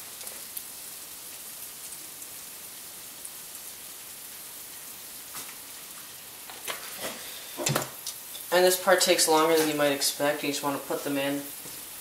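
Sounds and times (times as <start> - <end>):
potatoes sizzling in hot oil: 0.0 - 12.0.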